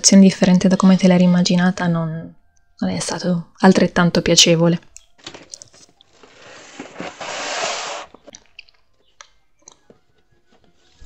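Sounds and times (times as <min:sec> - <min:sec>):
cardboard box scraping: 0:06.1 - 0:08.3.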